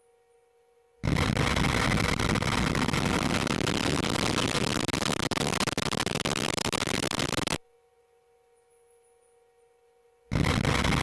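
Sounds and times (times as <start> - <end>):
rocket roar with crackle: 1.0 - 7.6, 10.3 - 11.0.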